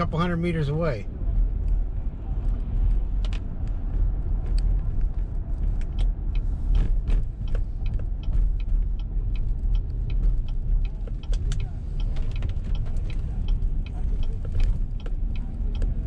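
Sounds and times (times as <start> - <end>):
car engine and tyre rumble: 0.0 - 16.0
light ticks and taps: 4.5 - 16.0.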